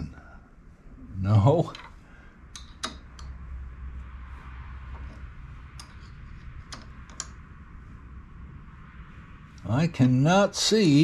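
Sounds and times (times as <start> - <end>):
steady low hum: 0.0 - 11.0
metal tool clicks: 2.6 - 3.4.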